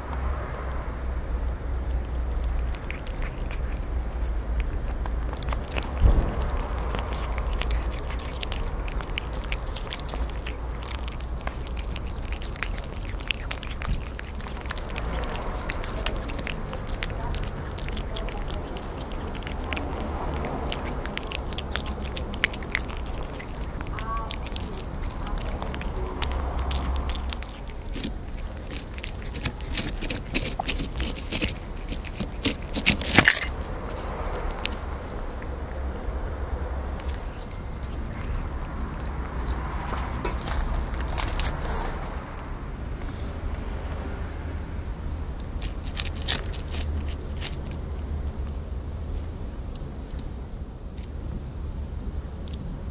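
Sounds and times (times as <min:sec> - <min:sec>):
kittens chewing wet food: 0:00.0 - 0:52.9
steady low rumble: 0:00.0 - 0:52.9.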